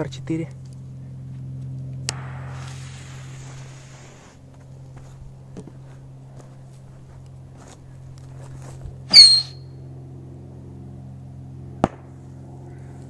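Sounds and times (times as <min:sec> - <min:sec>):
steady low hum: 0:00.0 - 0:13.0
firecracker fuse hissing: 0:02.1 - 0:04.5
footsteps on loose sand: 0:04.4 - 0:09.1.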